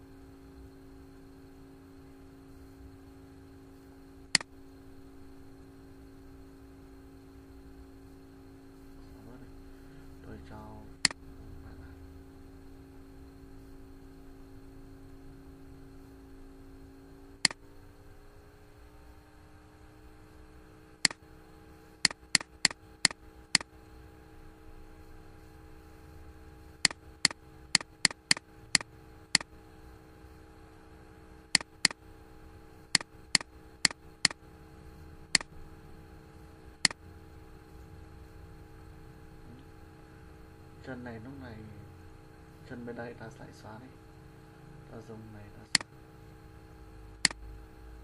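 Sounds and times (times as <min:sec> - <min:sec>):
faint steady hum: 0:00.0 - 0:48.0
computer mouse clicking: 0:22.0 - 0:23.7, 0:26.8 - 0:29.5, 0:31.5 - 0:32.0.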